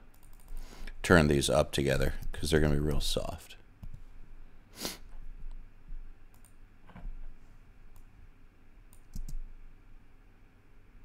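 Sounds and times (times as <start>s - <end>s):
mouse and keyboard clicks: 8.9s - 9.5s.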